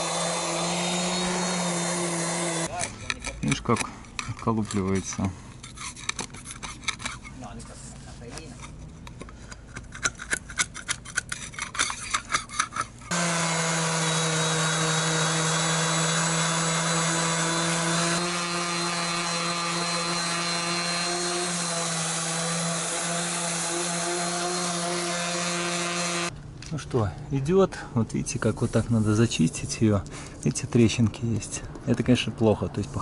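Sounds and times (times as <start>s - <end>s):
electric palm sander grinding: 0.0s - 2.7s, 13.1s - 26.3s
putty knife scraping paint: 5.5s - 7.4s, 8.6s - 13.0s.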